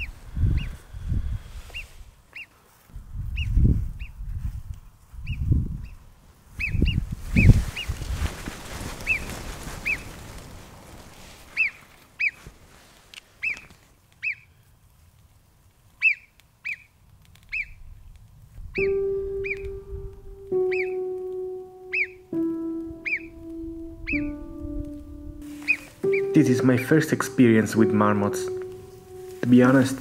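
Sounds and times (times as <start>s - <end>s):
low rumbling noise: 17.8s - 30.0s
marmot alarm whistles: 20.6s - 21.0s, 21.9s - 22.2s, 24.1s - 24.4s, 25.5s - 26.4s.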